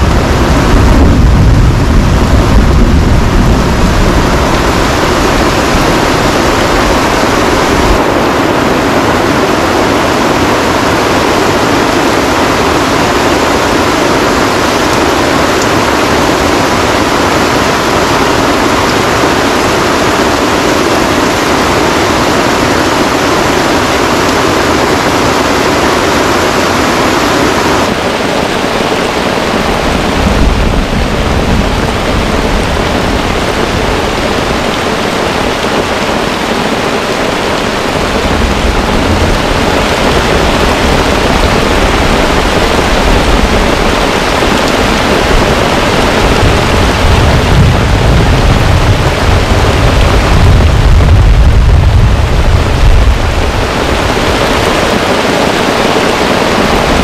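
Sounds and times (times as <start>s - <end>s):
low rumble: 0.0s - 9.4s, 37.7s - 54.3s
heavy rain pouring: 0.0s - 57.0s.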